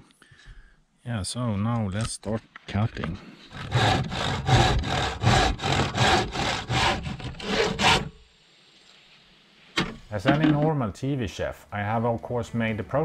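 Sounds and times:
handsaw cutting wood: 3.4 - 8.1.

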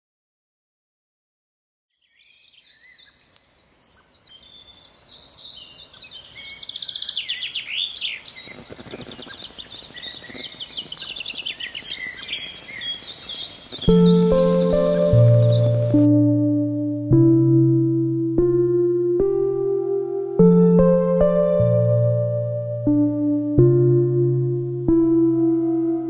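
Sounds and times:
songbirds singing and chirping: 1.9 - 16.1
music with held tones: 13.7 - 26.0.

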